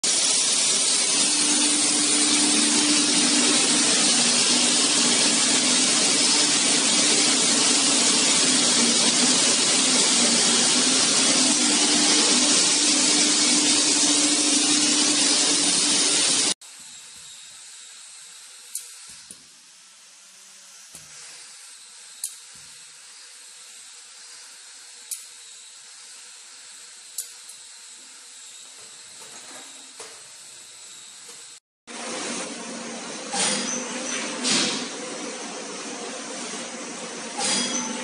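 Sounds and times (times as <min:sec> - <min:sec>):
tyre buffing machine rasping: 0:00.0 - 0:17.9.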